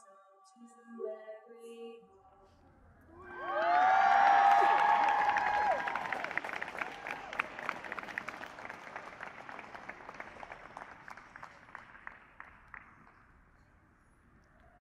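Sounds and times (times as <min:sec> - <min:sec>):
crowd applauding: 0:03.2 - 0:13.7.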